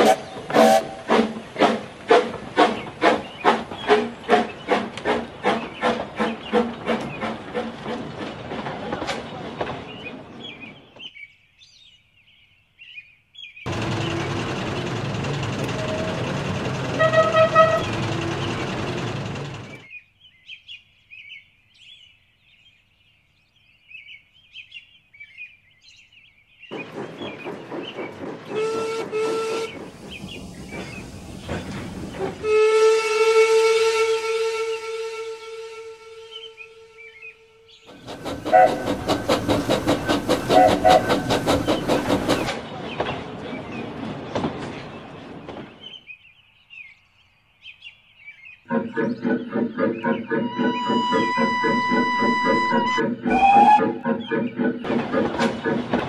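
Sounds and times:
steam whistle: 0:00.0 - 0:01.3, 0:17.0 - 0:18.5, 0:28.5 - 0:29.8, 0:32.4 - 0:37.2, 0:38.3 - 0:39.4, 0:40.5 - 0:41.4, 0:50.4 - 0:54.0
train wheels clicking over rail joints: 0:00.0 - 0:10.8, 0:13.7 - 0:19.9, 0:26.7 - 0:32.9, 0:37.9 - 0:46.1, 0:48.7 - 0:56.0
train running noise: 0:00.0 - 0:11.0, 0:13.7 - 0:19.9, 0:26.7 - 0:36.6, 0:37.8 - 0:46.1, 0:48.7 - 0:56.0.

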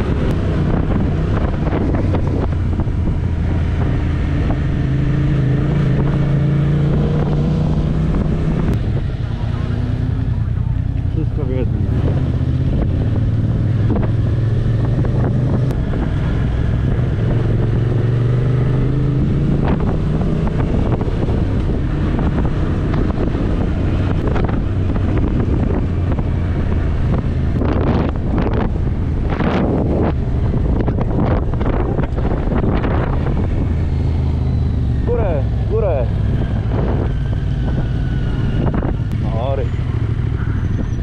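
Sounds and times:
motorcycle engine running: 0:00.0 - 0:41.0
wind rushing over microphone: 0:00.0 - 0:41.0.

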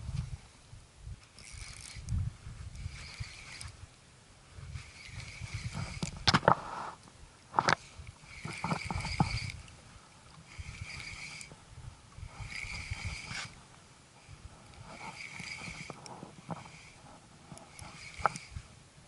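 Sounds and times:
fishing reel whirring: 0:01.2 - 0:03.9, 0:04.5 - 0:07.0, 0:07.7 - 0:18.8
rod handling knocks and clicks: 0:07.5 - 0:09.6, 0:14.6 - 0:18.5.

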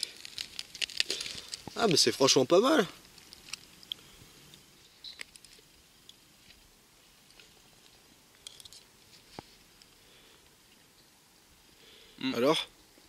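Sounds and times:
person chewing crusty bread: 0:00.0 - 0:01.8.

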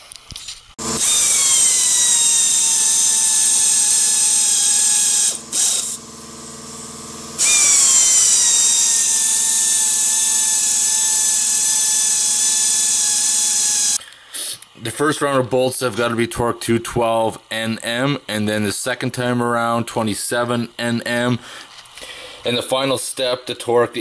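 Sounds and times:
air ratchet whining: 0:00.8 - 0:14.0.

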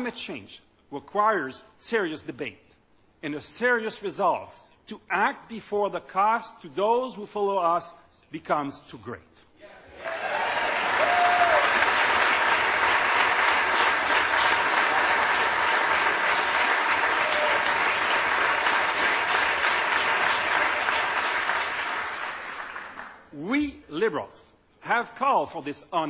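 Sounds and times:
large audience applauding: 0:09.9 - 0:23.3.

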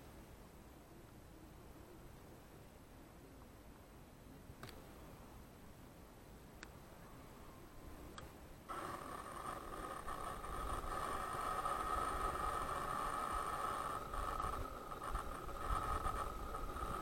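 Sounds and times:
small motor whining: 0:08.7 - 0:17.0.

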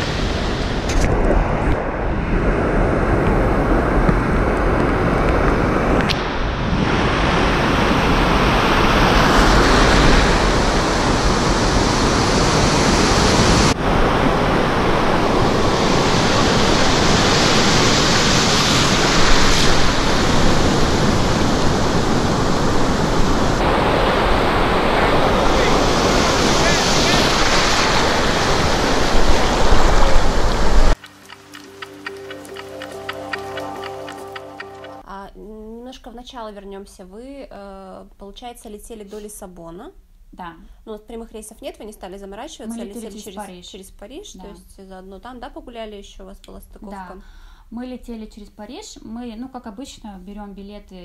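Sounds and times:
wind buffeting microphone: 0:00.0 - 0:34.4
surf rushing through shallow water: 0:00.0 - 0:35.0.

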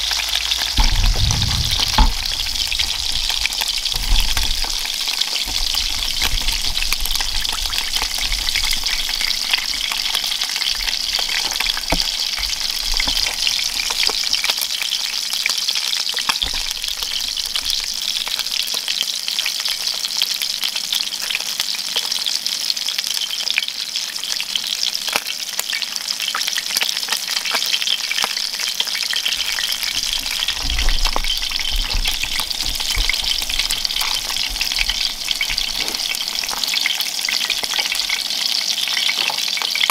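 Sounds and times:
fish frying in hot oil: 0:00.0 - 0:39.9.

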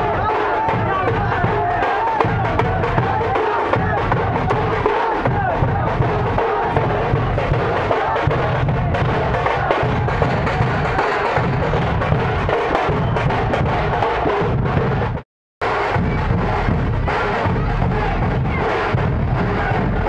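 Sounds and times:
barrel drums beaten with sticks: 0:00.0 - 0:20.0.

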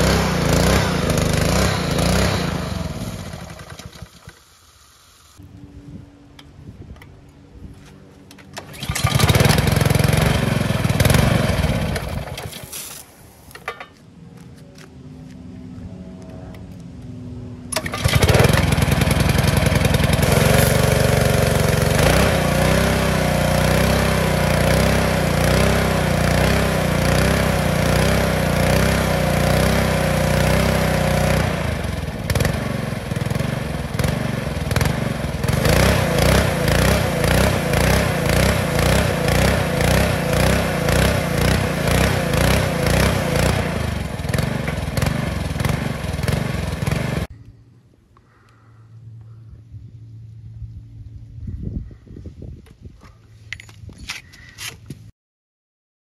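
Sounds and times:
small engine surging: 0:00.0 - 0:06.1, 0:08.5 - 0:13.0, 0:15.6 - 0:47.3.

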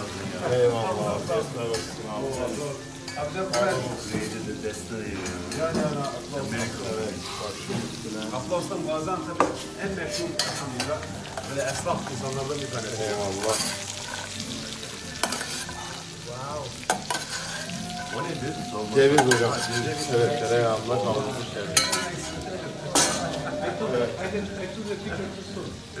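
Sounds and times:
meat sizzling on metal plate: 0:00.0 - 0:26.0
metal utensil scraping plate: 0:13.4 - 0:14.4, 0:15.2 - 0:16.0, 0:16.9 - 0:20.2.

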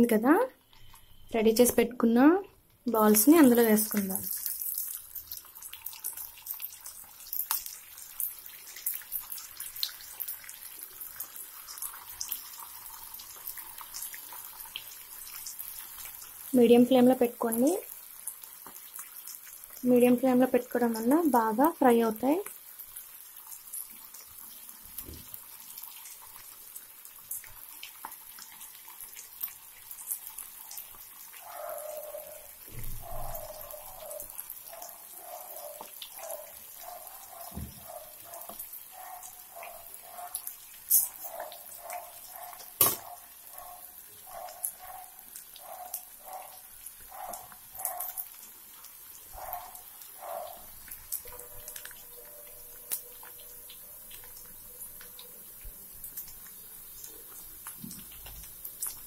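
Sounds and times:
food deep-frying in hot oil: 0:00.0 - 0:59.0
animal calling: 0:31.4 - 0:40.4.

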